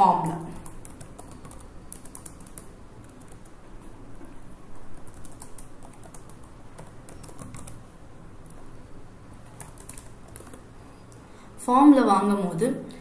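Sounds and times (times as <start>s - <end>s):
keyboard typing clicks: 0.5s - 3.9s, 4.8s - 7.8s, 9.4s - 11.2s.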